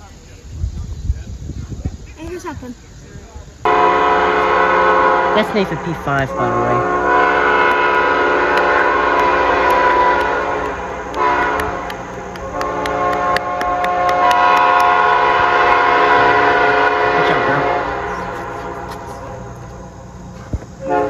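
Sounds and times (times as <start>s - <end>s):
locomotive air horn blasts: 3.7s - 20.0s, 20.8s - 21.0s.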